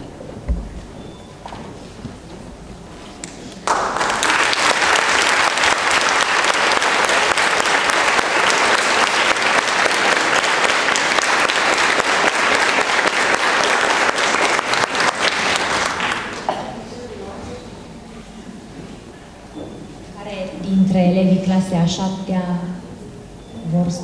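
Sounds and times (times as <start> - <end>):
large group applauding: 3.3 - 16.6.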